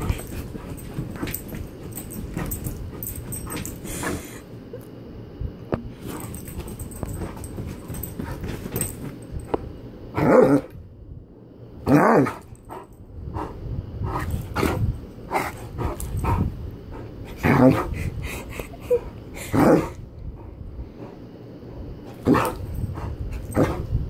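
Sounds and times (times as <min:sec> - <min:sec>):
bedding rustling: 0:00.0 - 0:04.4, 0:05.8 - 0:09.7
dog growling and grumbling: 0:10.1 - 0:10.8, 0:11.8 - 0:12.5, 0:14.1 - 0:20.1, 0:22.1 - 0:23.9.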